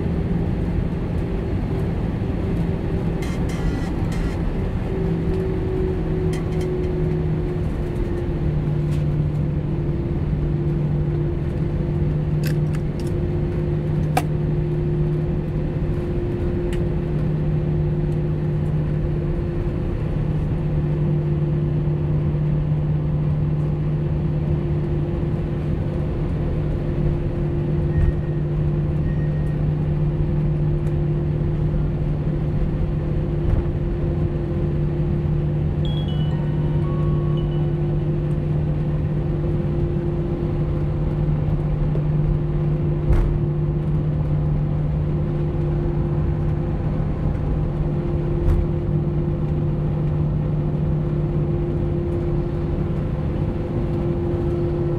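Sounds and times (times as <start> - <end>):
jet engines droning in cabin: 0.0 - 54.9.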